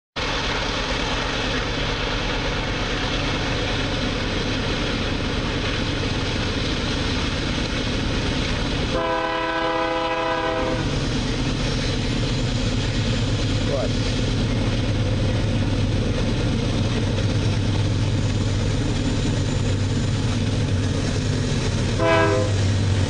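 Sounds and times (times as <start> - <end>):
locomotive rumbling: 0.2 - 23.0
train horn chord: 8.9 - 10.9, 21.9 - 22.8.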